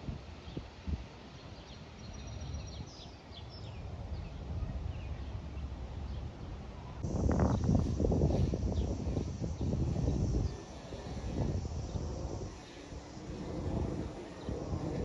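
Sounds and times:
distant airliner rumble: 6.2s - 15.0s.

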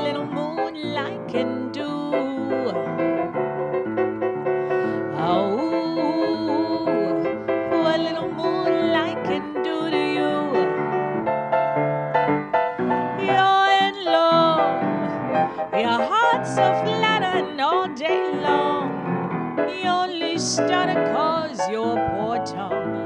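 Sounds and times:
woman singing with vibrato: 0.0s - 3.1s, 4.8s - 10.8s, 13.2s - 19.0s, 19.7s - 23.0s
piano accompaniment: 0.0s - 23.0s.

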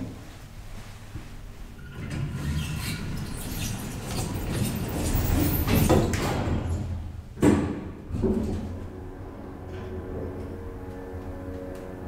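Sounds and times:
elevator mechanical rumble: 1.4s - 12.0s
sliding doors hissing: 1.7s - 7.4s.

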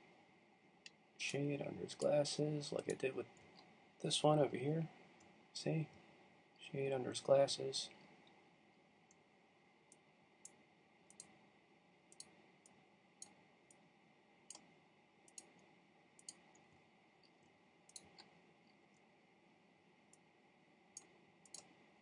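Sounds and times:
computer mouse clicking: 2.8s - 3.7s, 9.9s - 11.4s, 12.1s - 13.8s, 14.5s - 14.7s, 15.3s - 19.1s, 20.9s - 21.8s.

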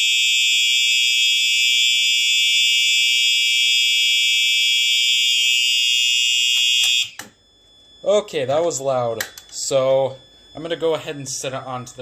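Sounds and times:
high-pitched fire alarm horn: 0.0s - 7.4s
small click: 6.6s - 7.4s.

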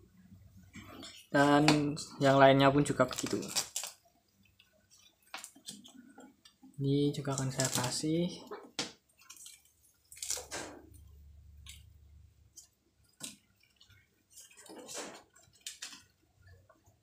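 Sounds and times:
wet leaves rustling and tearing: 2.8s - 4.0s, 7.2s - 8.1s, 9.2s - 11.9s, 12.5s - 16.2s.

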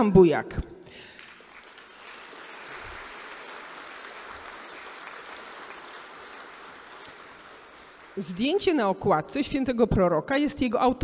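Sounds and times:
audience applauding: 1.0s - 8.8s.

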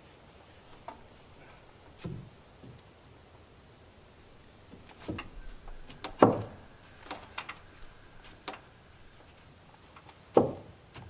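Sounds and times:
wooden boards knocking: 4.8s - 7.6s, 10.3s - 10.8s.

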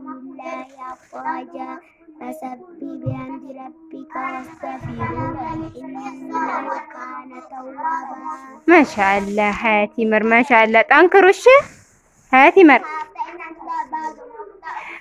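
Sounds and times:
girl chanting: 0.0s - 8.6s
short low bump: 3.1s - 3.3s, 4.8s - 5.8s.

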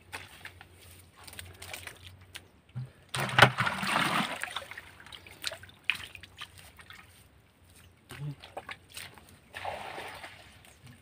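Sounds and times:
small splashes and trickling: 0.0s - 2.5s, 3.1s - 11.0s
bucket scooping muddy water: 0.0s - 7.3s, 8.1s - 11.0s
loud water slosh: 3.1s - 5.0s, 9.5s - 10.6s.

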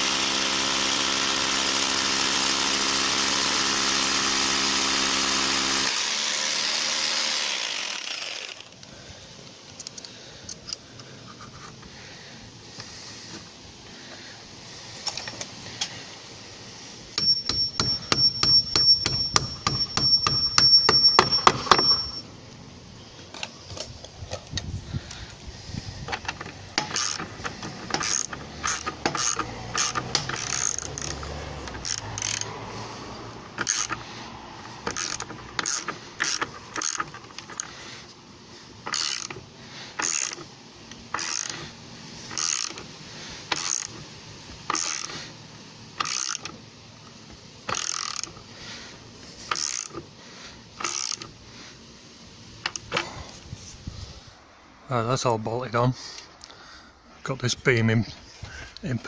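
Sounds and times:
power tool knocking and whining: 0.0s - 8.9s, 17.2s - 22.2s, 26.1s - 32.5s, 33.5s - 37.8s
socket wrench ratchet clicks: 17.2s - 22.2s, 26.2s - 32.5s, 33.6s - 34.0s, 34.8s - 37.7s, 38.8s - 39.4s, 40.0s - 41.6s, 42.3s - 42.8s, 43.5s - 44.0s, 44.7s - 45.1s, 46.0s - 46.6s, 47.7s - 48.4s, 49.5s - 50.0s, 50.8s - 51.3s.

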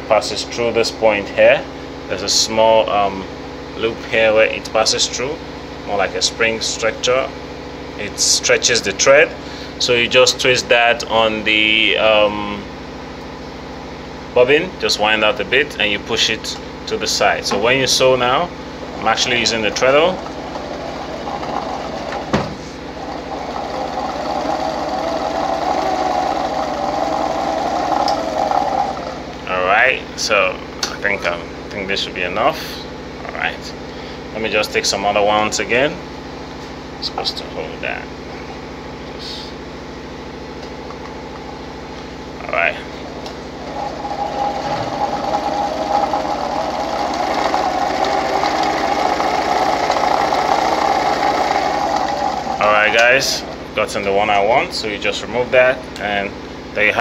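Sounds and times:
sewing machine whirring: 18.8s - 29.4s, 43.0s - 53.5s.

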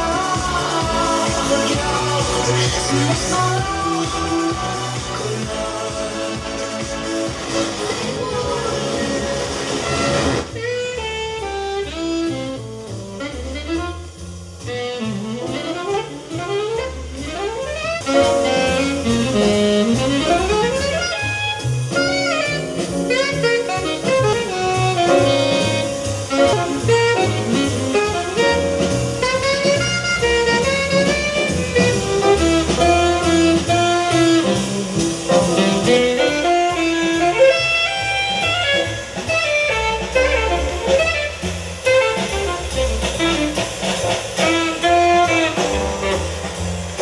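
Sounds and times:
jazz music led by saxophone: 0.0s - 47.0s.

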